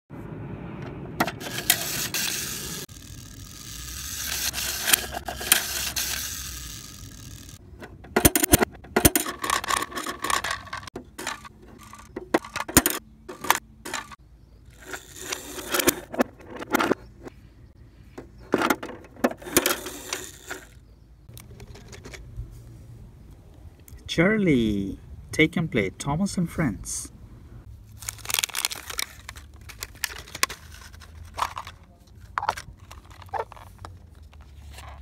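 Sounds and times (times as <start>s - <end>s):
toy garage doors rattling: 1.2s - 17.3s, 18.4s - 20.8s, 21.4s - 22.2s, 28.1s - 33.8s
plastic toys clattering on concrete: 1.3s - 17.3s, 18.1s - 22.2s, 28.0s - 35.0s.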